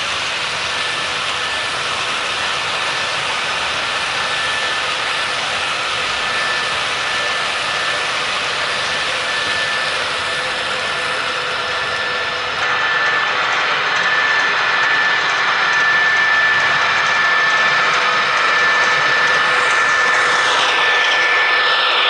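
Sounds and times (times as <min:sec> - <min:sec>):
faint high whine: 0:00.0 - 0:22.0.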